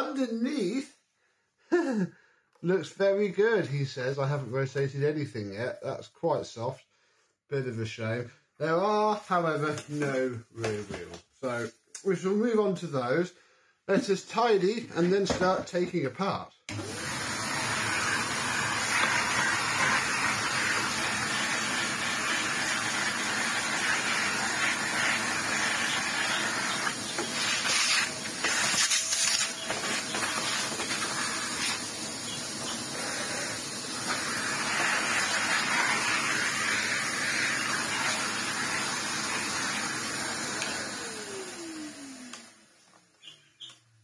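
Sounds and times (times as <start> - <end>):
motor winding down whine: 16.7 - 42.7
vacuum cleaner running: 16.7 - 43.0.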